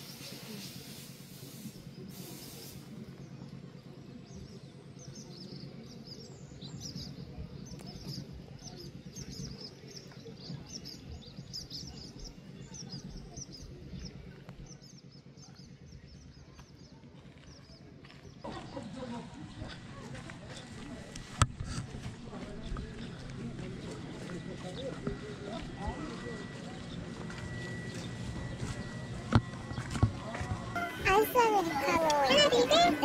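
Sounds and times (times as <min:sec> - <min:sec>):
small birds chirping: 0:00.0 - 0:18.4
low steady background rumble: 0:00.0 - 0:30.8.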